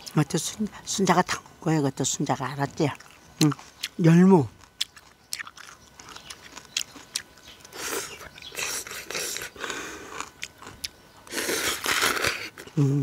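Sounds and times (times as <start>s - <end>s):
soft chewing: 2.8s - 12.8s
noodles slurped: 11.2s - 12.8s.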